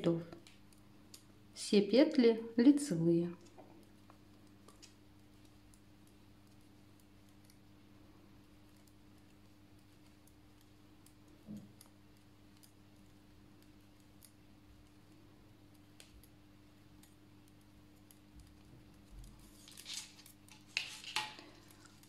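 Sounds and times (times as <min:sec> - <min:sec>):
low steady hum: 0:00.0 - 0:22.0
knitting needles clicking: 0:08.5 - 0:19.4.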